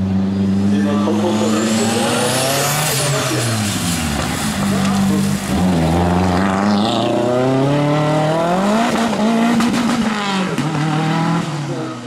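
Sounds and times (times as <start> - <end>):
rally car engine accelerating: 0.0 - 12.0
tyres hissing on wet road: 1.2 - 6.9.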